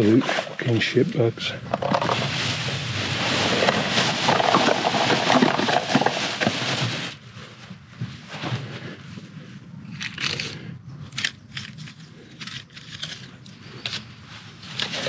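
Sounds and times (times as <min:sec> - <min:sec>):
plastic bin liner rustling: 0:00.0 - 0:09.0.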